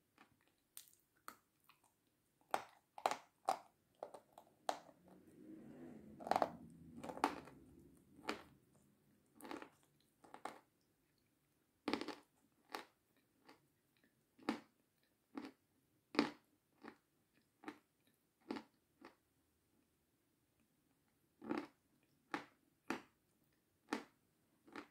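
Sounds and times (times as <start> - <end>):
chewing crunches: 0.1 - 5.0, 6.2 - 11.2, 11.8 - 14.7
soft low rumble: 4.0 - 10.2.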